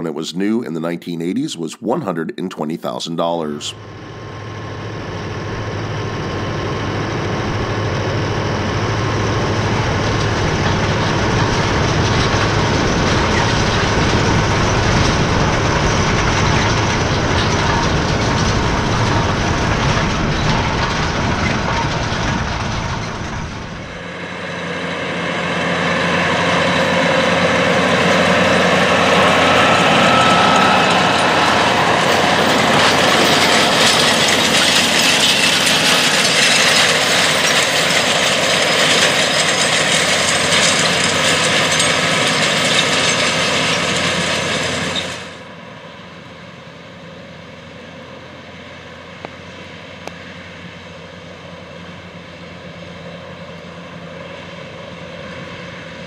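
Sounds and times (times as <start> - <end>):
tractor diesel engine running: 0.0 - 56.0
harrow tines and chains rattling: 5.8 - 24.4, 25.5 - 45.4.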